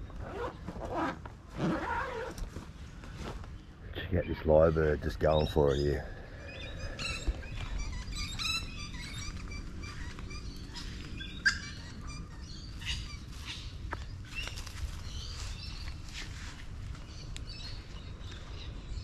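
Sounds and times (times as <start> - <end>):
lyrebird singing: 4.0 - 16.0.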